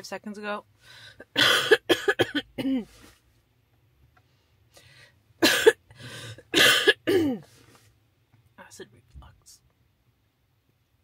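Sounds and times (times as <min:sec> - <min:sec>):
woman coughing: 0:01.2 - 0:02.9, 0:05.4 - 0:07.5.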